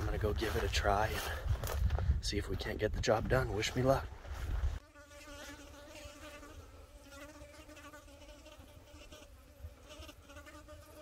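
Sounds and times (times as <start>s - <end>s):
flying insect buzzing: 4.6s - 11.0s.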